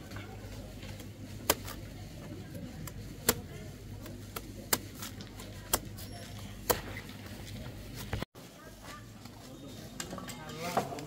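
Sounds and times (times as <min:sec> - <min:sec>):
knife chopping banana stalk: 0:01.4 - 0:01.8.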